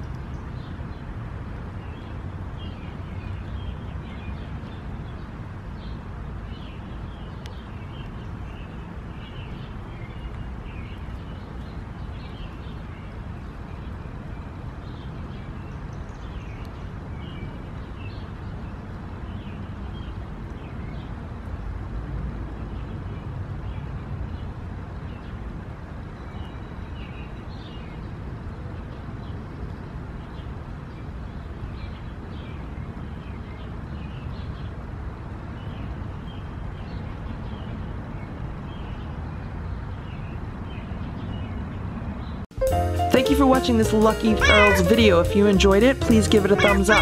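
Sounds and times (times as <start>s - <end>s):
small birds chirping: 23.7s - 47.0s.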